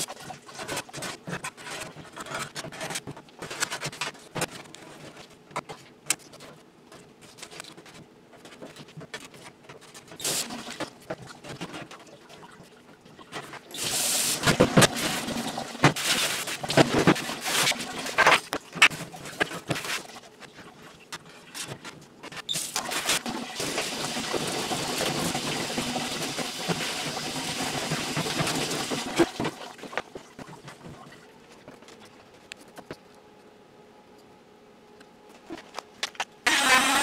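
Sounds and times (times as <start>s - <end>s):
water rushing from spray faucet: 22.8s - 29.4s.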